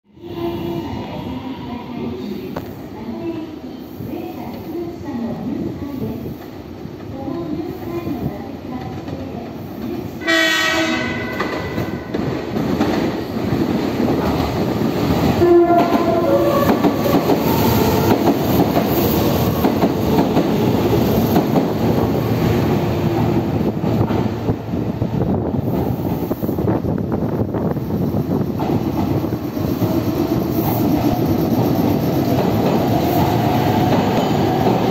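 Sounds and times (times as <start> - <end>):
train rumble and wheel clatter: 0.1 - 34.9
melodic train horn: 10.2 - 12.0, 15.4 - 18.0
train horn blast: 10.2 - 12.0, 15.4 - 18.0.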